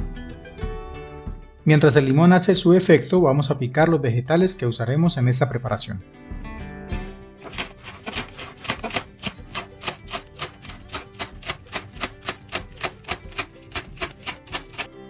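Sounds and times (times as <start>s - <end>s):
knife chopping on wooden board: 7.4s - 14.9s.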